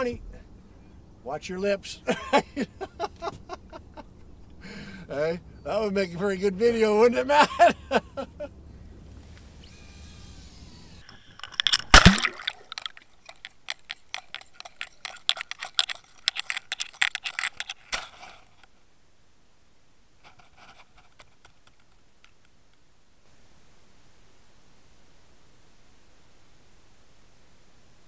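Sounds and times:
underwater splash: 11.4 - 13.0
faint hiss: 17.9 - 28.0.

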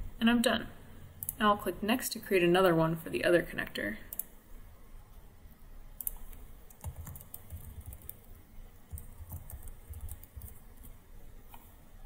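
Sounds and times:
computer keyboard typing: 6.0 - 11.0.

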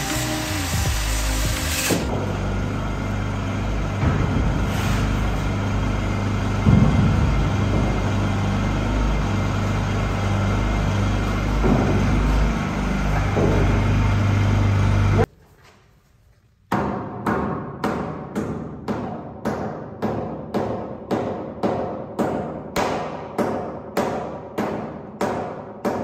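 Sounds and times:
angle grinder cutting steel: 0.0 - 2.1.

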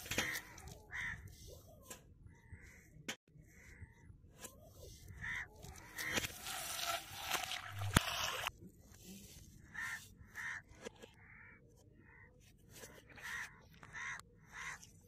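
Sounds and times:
crow cawing: 0.1 - 1.3, 5.1 - 6.2, 9.7 - 12.3, 13.2 - 14.9.

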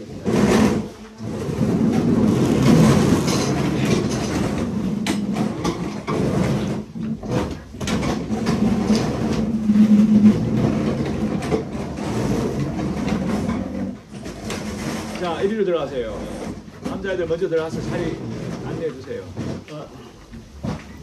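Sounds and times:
chairs knocking against desks: 0.0 - 19.8, 20.4 - 21.0
chairs scraping across floor: 0.0 - 21.0.

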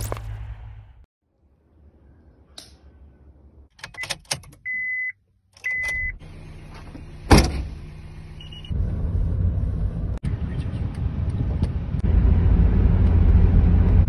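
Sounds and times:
car engine humming: 6.0 - 14.0.

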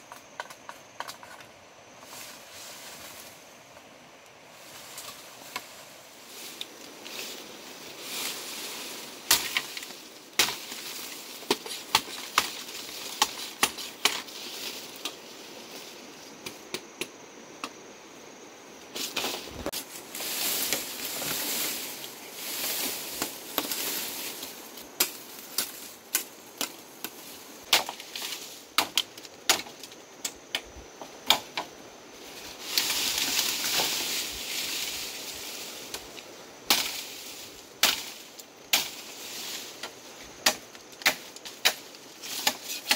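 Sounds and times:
leaves and stems rustling: 0.0 - 42.9
machete chopping bamboo: 9.3 - 14.3, 25.0 - 31.7, 36.7 - 37.0, 37.8 - 39.0, 40.4 - 42.9.

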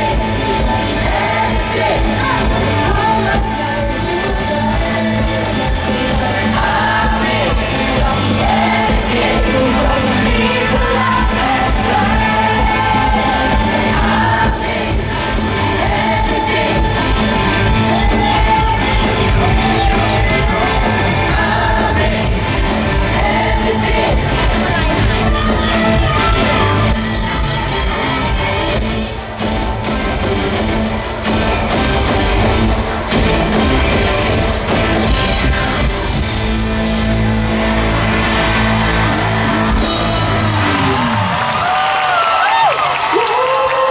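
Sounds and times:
singers singing into microphones: 0.0 - 41.4
live band playing: 0.0 - 42.1
audience shouting: 37.6 - 43.9
crowd shrieking: 37.6 - 43.9.

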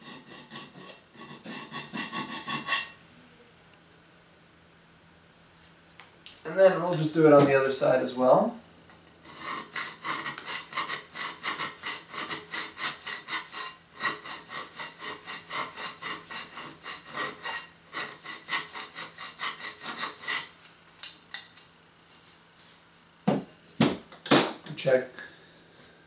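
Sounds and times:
hand file rasping on metal: 0.0 - 3.0, 9.2 - 20.5.

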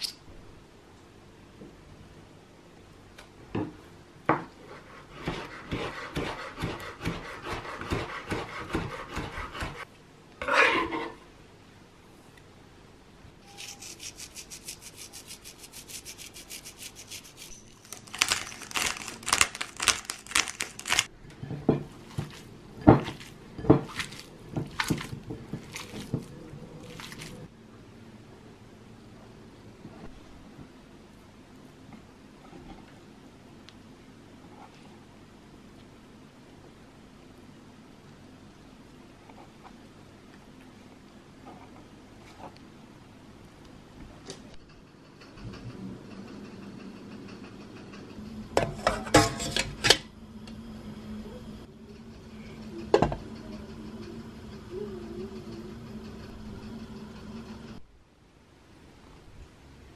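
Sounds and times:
knife scraping cutting board: 4.7 - 9.8, 10.4 - 11.2, 13.5 - 21.1, 22.0 - 27.5
knife chopping on wooden board: 5.2 - 9.8
meat squelching in glass bowl: 21.9 - 27.5.

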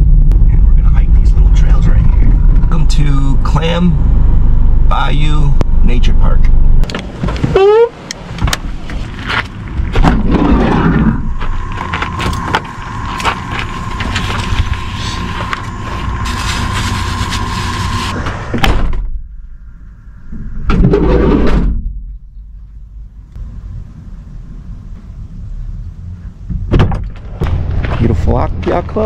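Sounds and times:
steady electronic tone: 0.0 - 6.8, 10.3 - 20.7
low rumble: 0.0 - 29.0.

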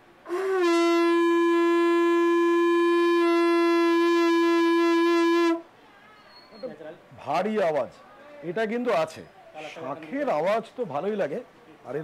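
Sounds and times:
conch shell blown: 0.2 - 5.7.

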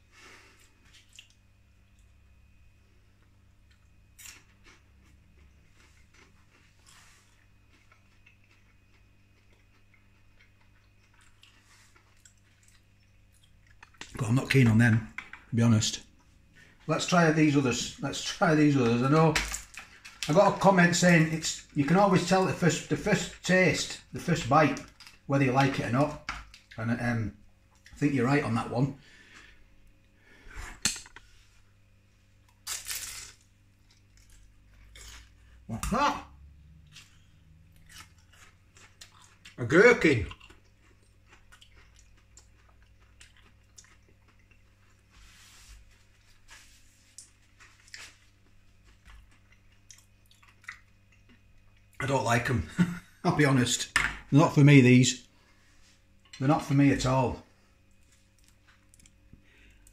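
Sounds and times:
low steady hum: 0.0 - 59.9
crisp crunch of biting pastry: 32.5 - 35.6.

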